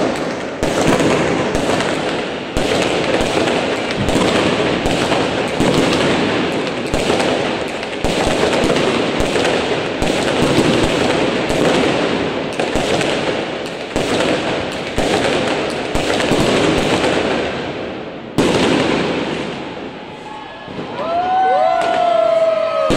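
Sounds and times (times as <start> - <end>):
fireworks crackling and banging: 0.0 - 22.9
loud firework bang: 3.9 - 7.3.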